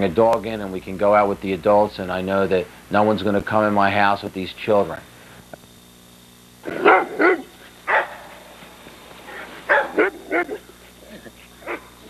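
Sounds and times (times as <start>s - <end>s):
dog barking: 6.7s - 8.4s, 9.3s - 12.0s.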